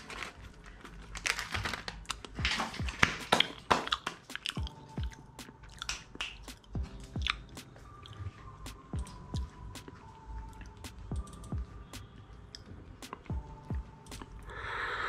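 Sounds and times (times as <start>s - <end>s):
chewing and crunching: 0.0s - 8.3s
soft background music: 0.0s - 15.0s.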